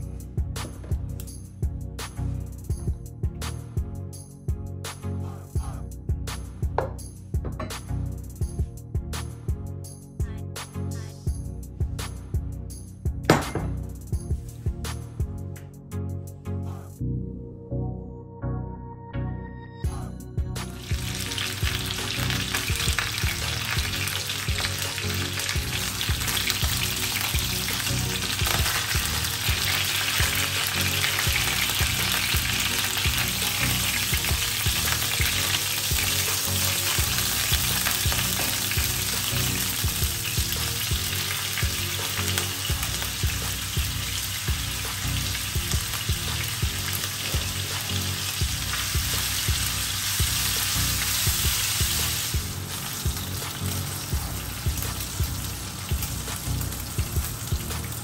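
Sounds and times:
meat sizzling in a frying pan: 20.7s - 58.0s.

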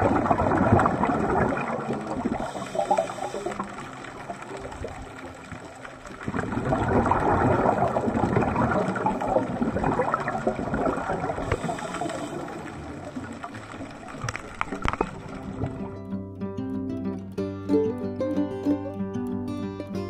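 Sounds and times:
underwater bubbles rushing: 0.0s - 16.2s.

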